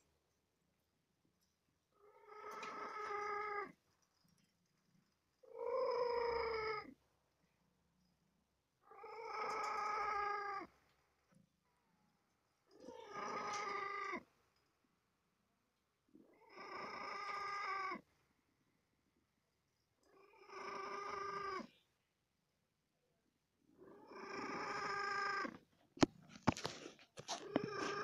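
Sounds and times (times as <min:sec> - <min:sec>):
cat meowing: 0:12.8 - 0:14.2.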